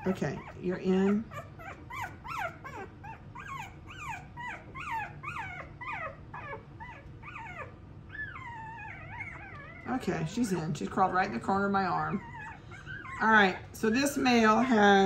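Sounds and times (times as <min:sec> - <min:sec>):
puppy crying: 0:00.0 - 0:15.0.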